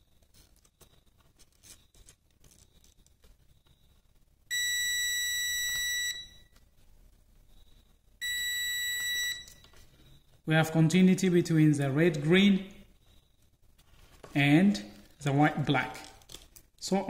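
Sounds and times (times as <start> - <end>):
multimeter high beeps: 4.5 - 6.5, 8.2 - 9.7.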